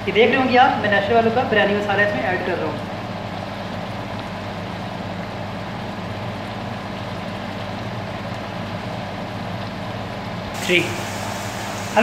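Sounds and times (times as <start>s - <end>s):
even hiss: 10.5s - 12.0s.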